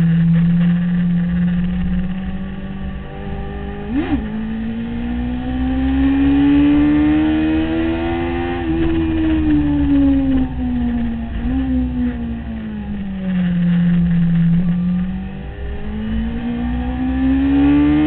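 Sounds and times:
motorcycle engine accelerating: 0.0s - 18.0s.

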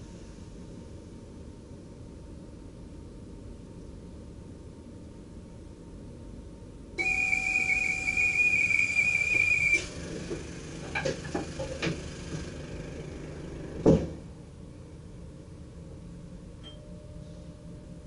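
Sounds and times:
shrill signal tone: 7.0s - 10.0s.

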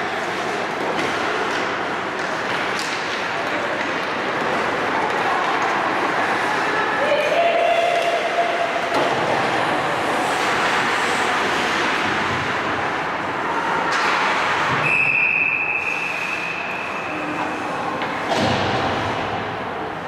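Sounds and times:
skates scraping on ice: 0.1s - 14.8s.

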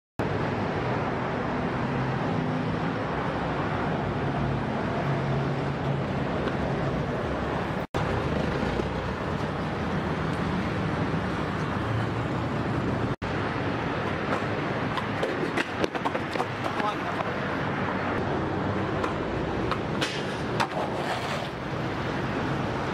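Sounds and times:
street traffic noise: 0.2s - 22.9s
skateboard clattering impacts: 14.2s - 17.3s, 19.0s - 21.6s.

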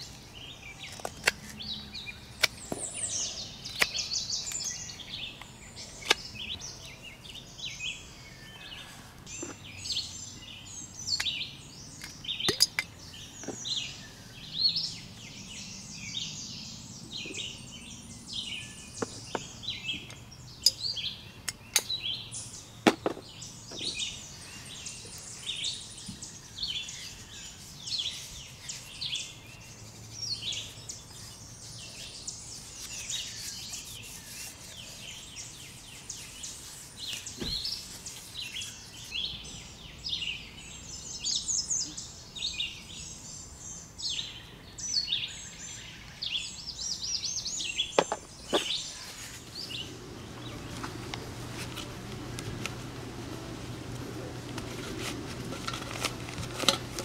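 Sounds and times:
birds chirping and singing: 0.0s - 57.0s
blade knocking into wood: 48.0s - 48.7s.

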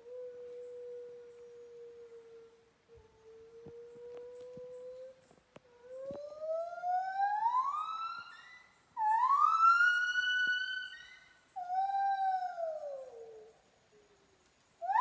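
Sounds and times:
gibbon whooping calls: 6.3s - 12.6s.

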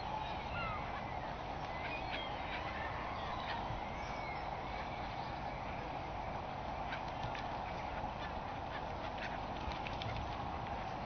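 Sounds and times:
gulls calling: 0.0s - 11.0s
wings flapping: 6.9s - 10.8s.

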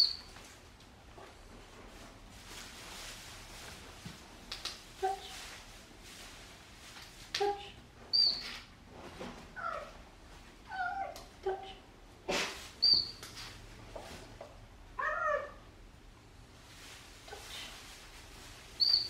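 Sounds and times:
cheetah chirping: 0.0s - 0.3s, 8.1s - 8.5s, 12.8s - 13.2s, 18.8s - 19.0s.

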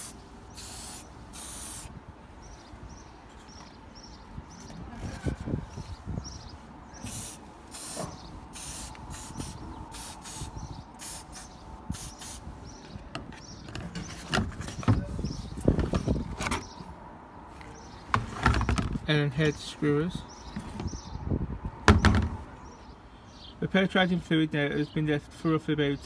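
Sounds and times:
aerosol spray hissing: 0.0s - 1.9s, 7.0s - 12.4s.

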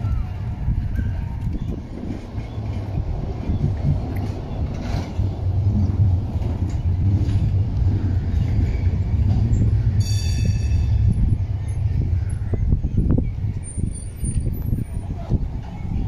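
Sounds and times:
tram rumbling on rails: 0.0s - 16.0s
high-pitched ring: 10.0s - 11.2s.

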